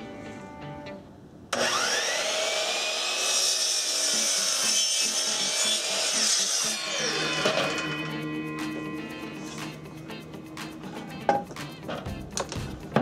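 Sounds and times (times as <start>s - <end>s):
miter saw whining: 1.5s - 10.0s
saw blade cutting wood: 1.6s - 9.8s.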